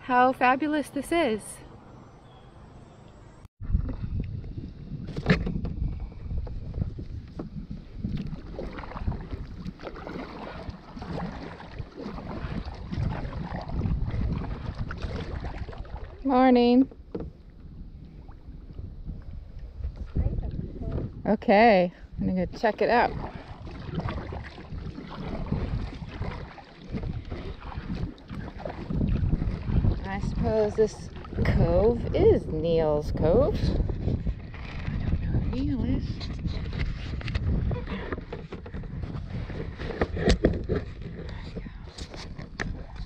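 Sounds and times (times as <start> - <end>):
water splashing against kayak: 3.6 - 43.0
wind on microphone: 3.6 - 43.0.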